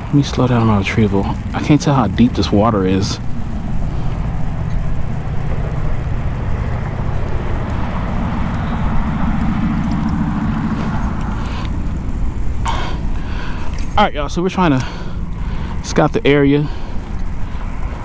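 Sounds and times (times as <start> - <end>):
motor vehicle passing: 0.0 - 18.0.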